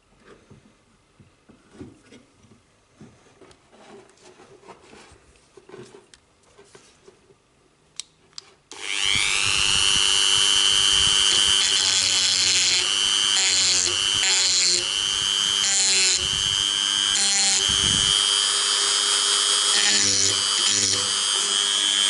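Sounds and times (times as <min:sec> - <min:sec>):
bit grinding steel: 0:08.7 - 0:22.0
rotary tool whining: 0:08.7 - 0:22.0.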